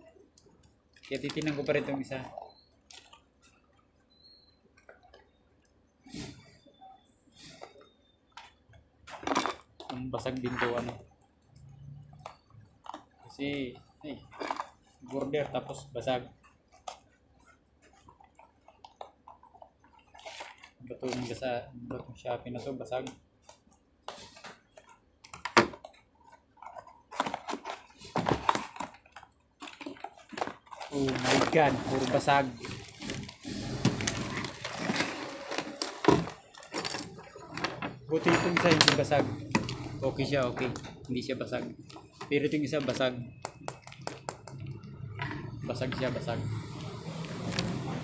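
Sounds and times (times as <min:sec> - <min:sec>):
cardboard packaging rustling: 0:26.6 - 0:44.4.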